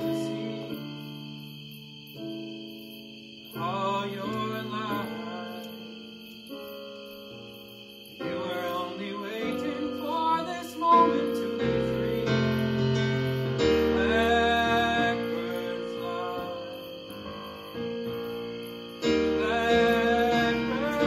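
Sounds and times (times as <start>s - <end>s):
keyboard chords: 0.0s - 21.0s
wordless vocal line: 13.8s - 16.8s, 19.2s - 21.0s.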